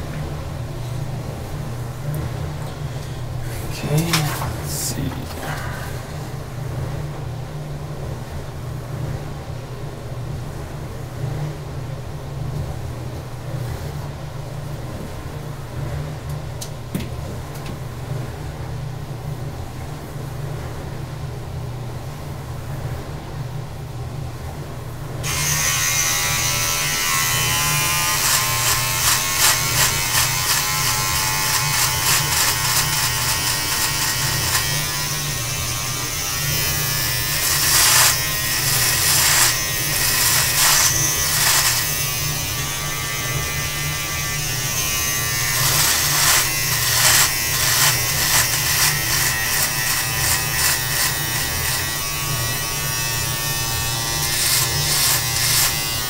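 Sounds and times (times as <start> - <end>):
electric beard trimmer buzzing: 25.2 - 56.0
trimmer blades rasping through beard: 25.2 - 56.0.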